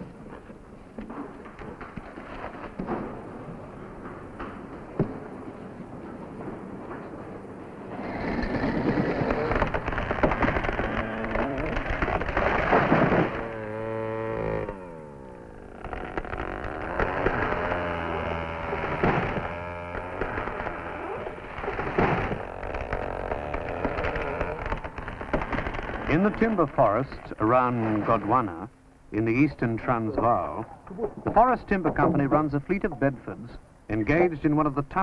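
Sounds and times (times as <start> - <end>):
chainsaw cutting wood: 8.0 - 26.8.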